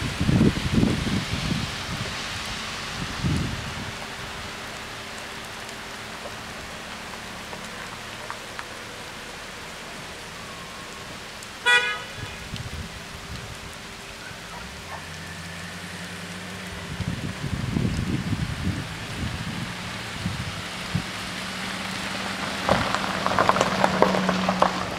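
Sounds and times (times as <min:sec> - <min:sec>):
car on wet road: 0:00.0 - 0:24.9
rain on wet pavement: 0:00.0 - 0:24.9
short horn toot: 0:11.7 - 0:12.2.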